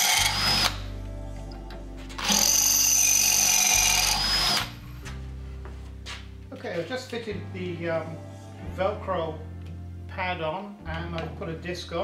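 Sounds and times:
cordless drill drilling metal: 0:00.0 - 0:00.9, 0:02.2 - 0:04.7
background music: 0:00.0 - 0:12.0.

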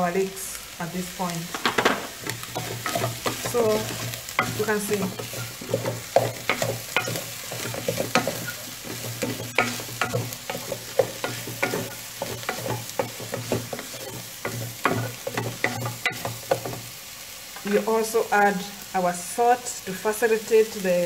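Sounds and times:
food sizzling: 0:00.0 - 0:21.0
wooden spoon scraping metal pot: 0:01.5 - 0:16.8.

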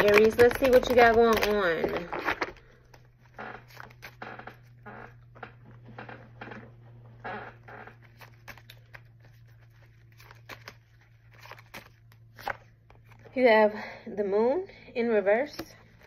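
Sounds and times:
cards being shuffled: 0:00.0 - 0:06.6, 0:07.2 - 0:13.3
low steady hum: 0:00.0 - 0:16.0.

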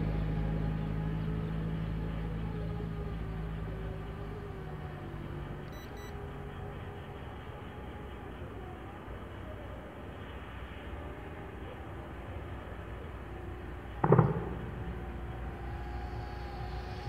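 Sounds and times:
short high beeps: 0:05.7 - 0:06.1.

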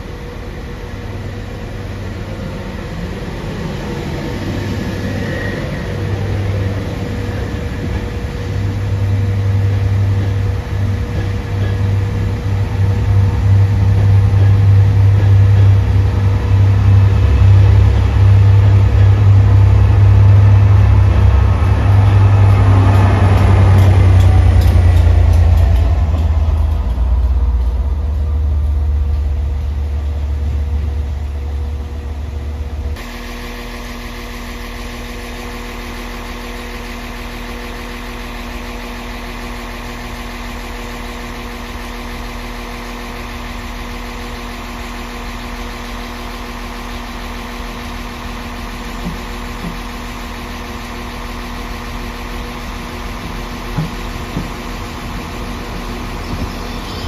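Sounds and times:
diesel locomotive rumble: 0:00.0 - 0:57.0
diesel train idling hum: 0:00.0 - 0:57.0.

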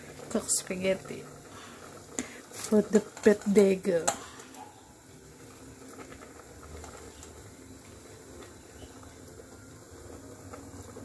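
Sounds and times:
water boiling and bubbling: 0:00.0 - 0:11.0.

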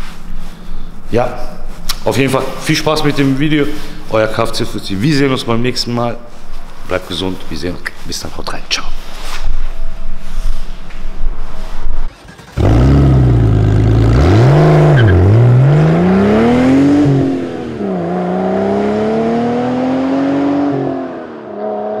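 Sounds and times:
car engine accelerating: 0:12.0 - 0:22.0.

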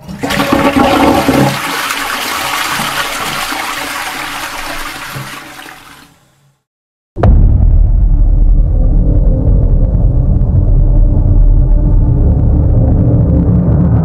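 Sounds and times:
water gushing into toilet bowl: 0:00.0 - 0:06.2.

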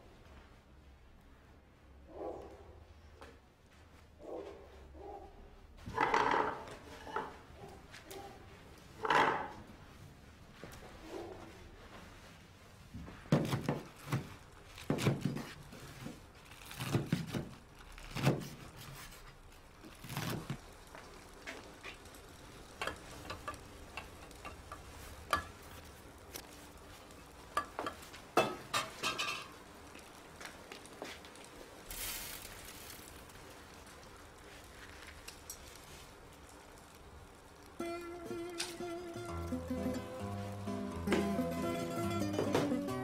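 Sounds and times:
pots and utensils clattering: 0:22.7 - 0:25.6, 0:27.6 - 0:29.6.

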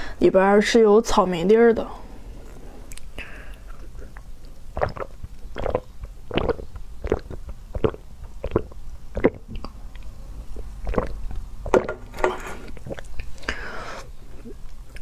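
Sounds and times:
person gulping a drink: 0:02.9 - 0:13.6, 0:14.3 - 0:15.0.

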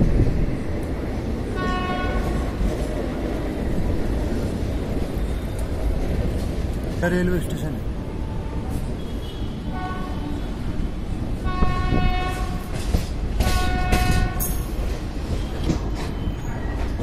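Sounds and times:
train rumbling: 0:00.0 - 0:17.0
train horn blasts: 0:01.6 - 0:02.4, 0:09.0 - 0:10.5, 0:11.4 - 0:12.8, 0:13.4 - 0:14.6.

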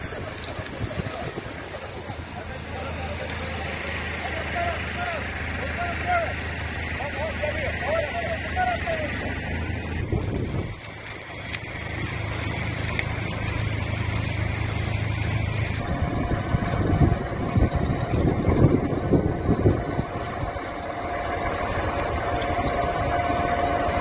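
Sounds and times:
faint crackles: 0:00.0 - 0:02.2, 0:10.1 - 0:15.9
wind buffeting microphone: 0:00.0 - 0:02.3, 0:09.8 - 0:13.7, 0:15.8 - 0:24.0
engine whining: 0:00.0 - 0:24.0
vehicle engine humming: 0:00.0 - 0:24.0.

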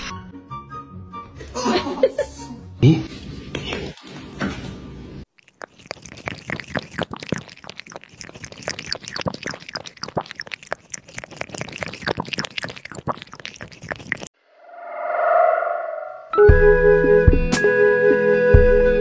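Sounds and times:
cat lapping liquid: 0:05.3 - 0:14.3.

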